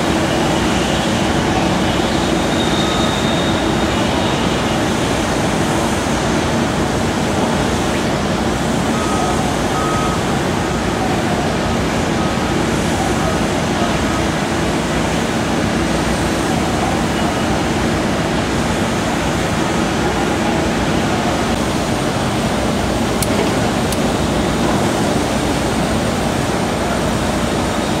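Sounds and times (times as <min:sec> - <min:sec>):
construction site din: 0:00.0 - 0:28.0
excavator diesel engine running: 0:00.0 - 0:28.0
short beeps: 0:09.0 - 0:10.2.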